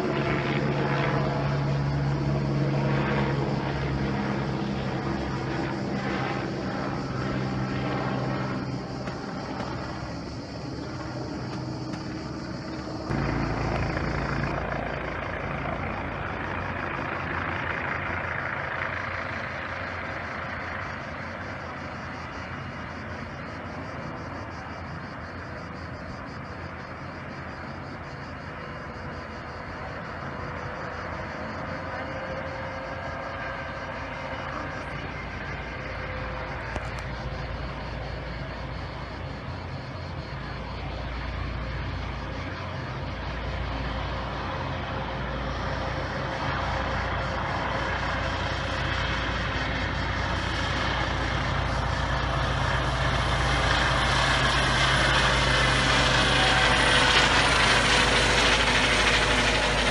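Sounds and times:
helicopter rotor and engine: 0:00.0 - 0:59.9.

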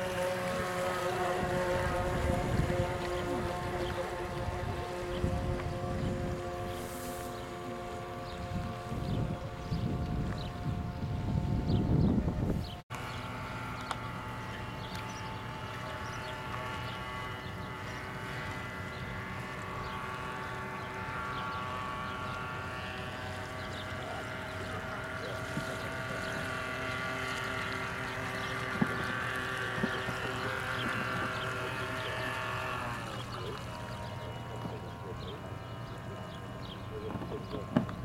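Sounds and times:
model boat motor whining: 0:00.0 - 0:38.0
water noise: 0:00.0 - 0:38.0.

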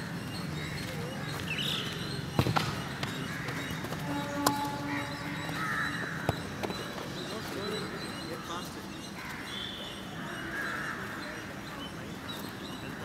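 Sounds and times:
birds chirping: 0:00.0 - 0:13.0
footballs being kicked: 0:02.3 - 0:04.8, 0:06.2 - 0:07.1
horn-like tone: 0:04.0 - 0:05.4.

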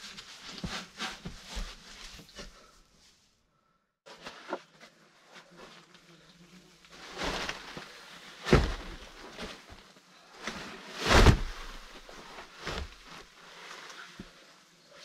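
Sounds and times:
wooden logs knocking and thudding: 0:08.5 - 0:09.2.

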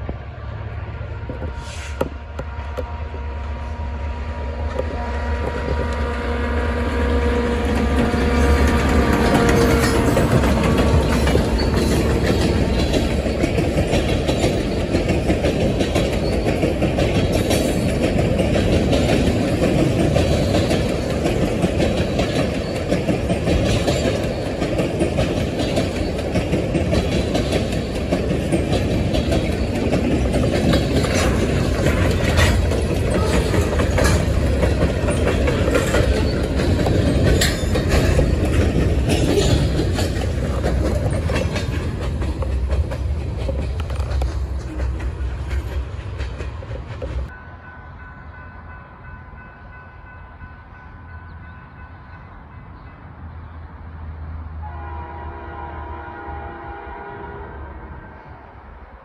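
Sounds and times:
freight train cars rumbling past: 0:00.0 - 0:59.0
wheel clicks over rail joints: 0:08.0 - 0:47.3.

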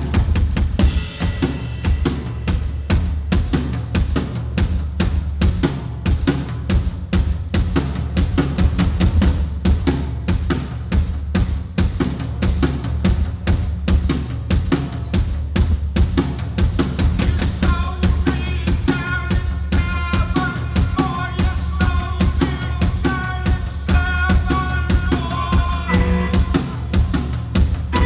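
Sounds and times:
live band playing: 0:00.0 - 0:08.8, 0:14.1 - 0:28.0
fast percussion: 0:00.0 - 0:28.0
sustained pitched notes: 0:25.9 - 0:26.9.

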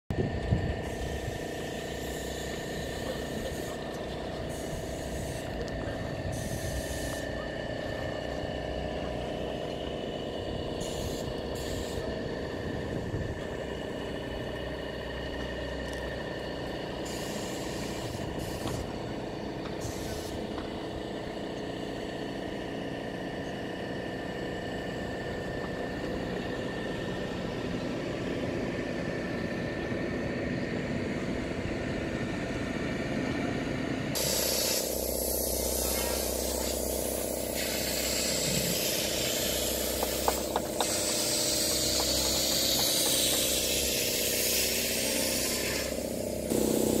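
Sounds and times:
idling engine hum: 0:00.1 - 0:47.0
loud hiss: 0:10.8 - 0:12.1, 0:17.0 - 0:18.8, 0:34.2 - 0:47.0.

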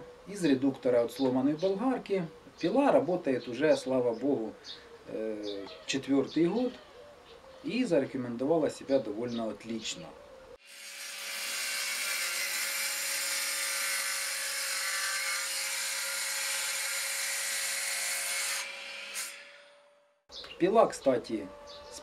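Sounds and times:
chop saw whine: 0:10.6 - 0:19.9.

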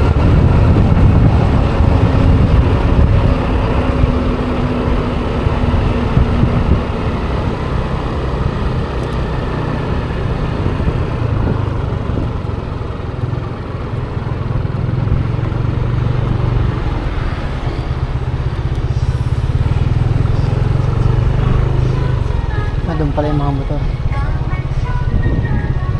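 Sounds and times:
road rush: 0:00.0 - 0:25.9
scooter engine: 0:00.0 - 0:25.9.

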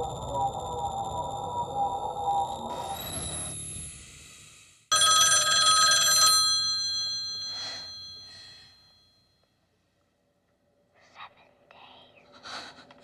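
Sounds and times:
telephone bell ringing: 0:04.9 - 0:09.2.

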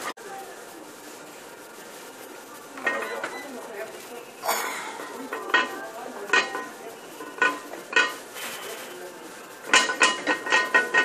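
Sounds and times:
metal gym weights clanking: 0:09.6 - 0:11.0.

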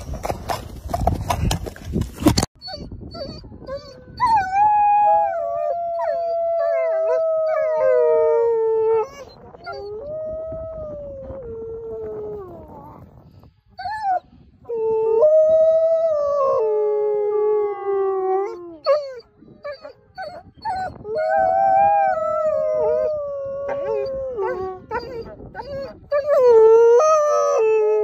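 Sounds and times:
wolves howling: 0:04.3 - 0:13.0, 0:21.0 - 0:28.0.

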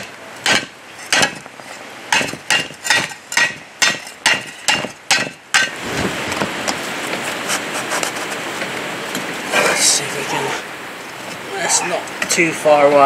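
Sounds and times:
hammer striking metal: 0:00.0 - 0:01.4, 0:02.1 - 0:05.7.

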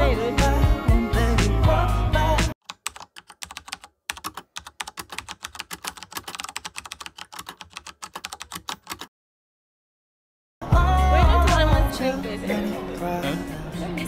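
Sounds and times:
typing on a keyboard: 0:02.6 - 0:09.1.

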